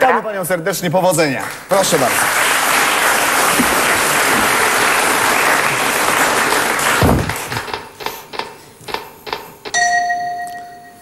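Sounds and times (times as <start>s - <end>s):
audience applauding: 1.4s - 7.9s.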